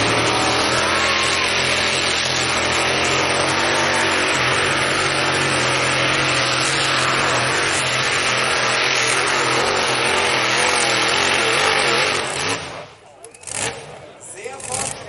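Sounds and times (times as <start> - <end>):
racing tractor engine roaring: 0.0 - 15.0.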